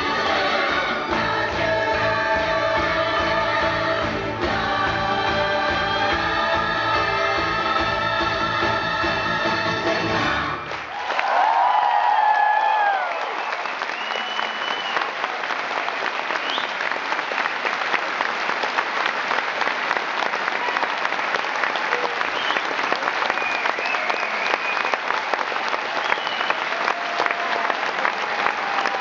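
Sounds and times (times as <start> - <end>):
audience applauding: 10.0 - 29.0.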